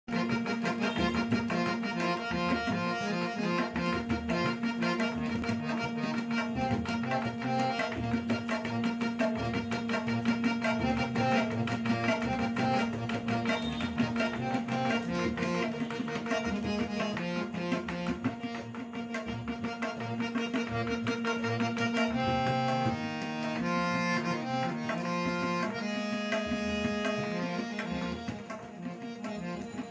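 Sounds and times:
harmonium melody: 0.0s - 29.9s
tabla beat: 0.1s - 29.9s.

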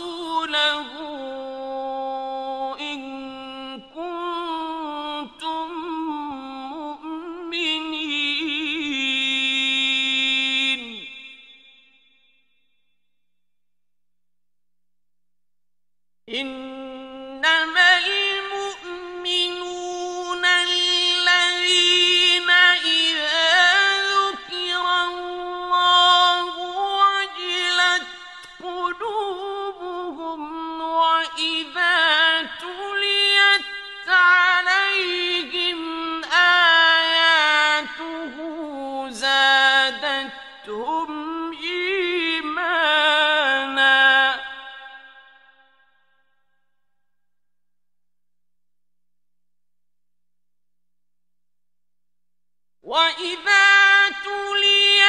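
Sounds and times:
man reciting melodically: 16.3s - 44.8s.

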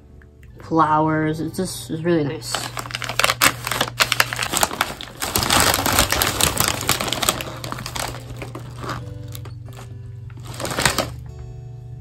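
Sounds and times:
chip bag crackling: 2.4s - 11.2s.

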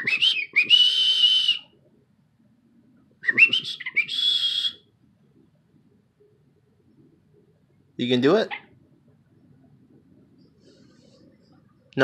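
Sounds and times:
parrot whistling: 0.0s - 1.7s, 3.2s - 4.9s.

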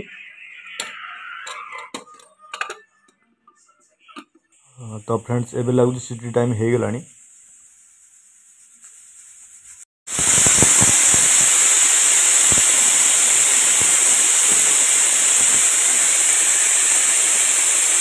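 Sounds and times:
pressure cooker valve whistling: 10.1s - 18.0s.

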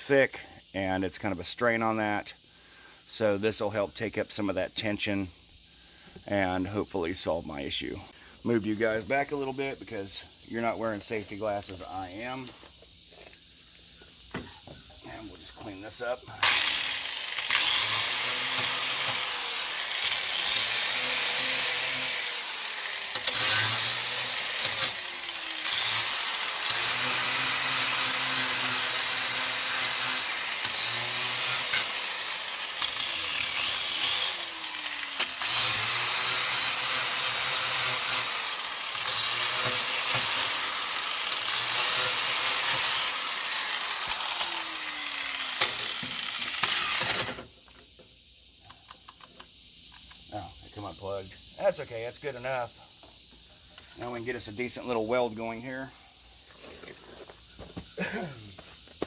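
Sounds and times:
angle grinder grinding metal: 14.3s - 47.5s.

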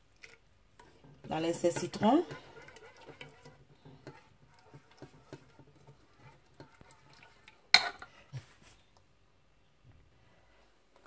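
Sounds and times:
cookware knocks and scrapes: 0.8s - 8.2s.

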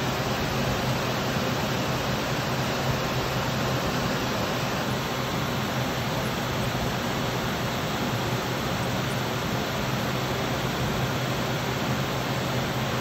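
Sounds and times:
ventilation fans rushing: 0.0s - 13.0s.

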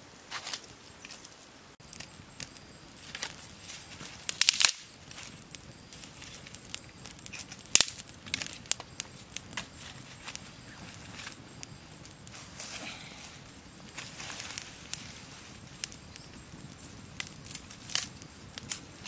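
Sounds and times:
dry sticks cracking and snapping: 0.3s - 10.4s, 17.2s - 18.9s.

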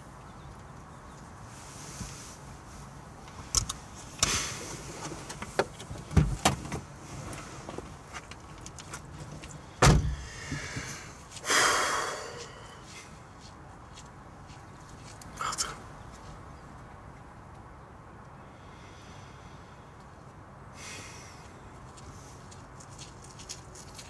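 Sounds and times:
car door closing thump: 6.1s - 6.8s, 9.8s - 11.0s
car door latch clicks: 9.8s - 10.3s.

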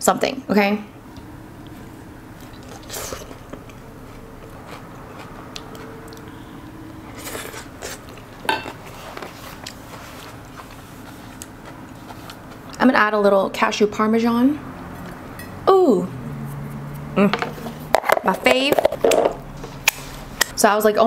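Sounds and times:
chewing and crunching salad: 1.6s - 13.0s.

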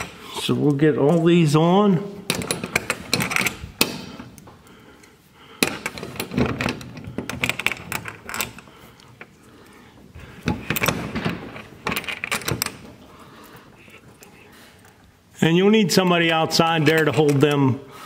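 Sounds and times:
metal washers and nuts clinking: 2.2s - 4.3s, 10.4s - 13.0s.

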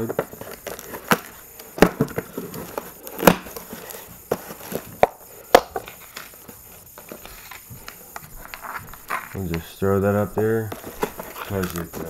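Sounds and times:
cardboard box being opened: 10.7s - 12.0s.

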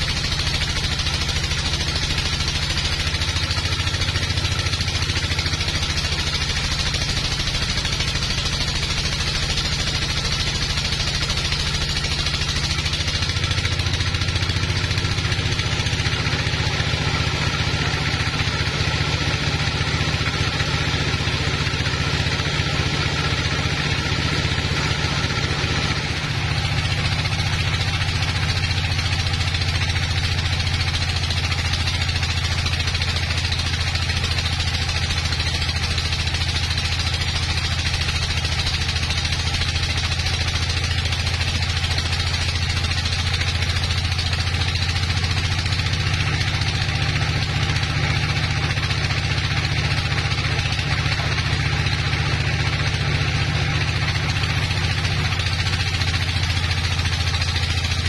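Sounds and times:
band saw cutting log: 21.7s - 52.4s.

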